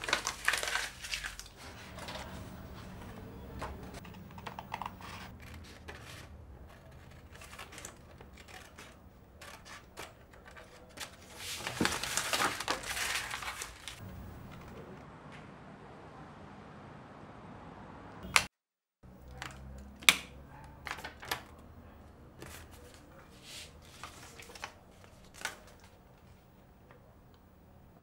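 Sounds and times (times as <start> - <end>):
paper rustling: 0.0 - 14.9, 20.5 - 21.6, 22.4 - 26.4
scissors snipping paper: 3.7 - 14.0.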